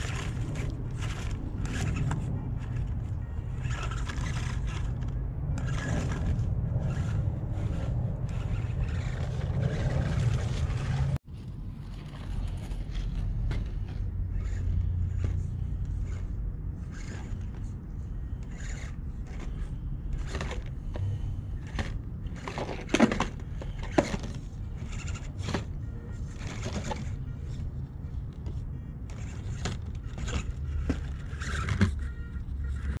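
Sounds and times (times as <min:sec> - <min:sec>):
toy car scraping on stones: 0:00.0 - 0:11.2, 0:11.9 - 0:27.7, 0:28.5 - 0:33.0
steady low rumble: 0:00.0 - 0:24.9.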